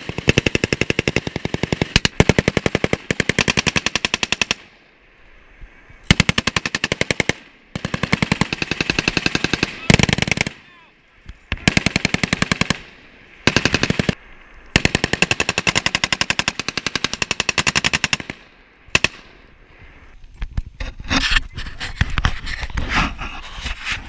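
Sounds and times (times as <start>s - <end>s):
machine gun firing bursts: 0.0s - 4.7s, 6.1s - 10.6s, 11.5s - 14.2s, 14.8s - 19.2s.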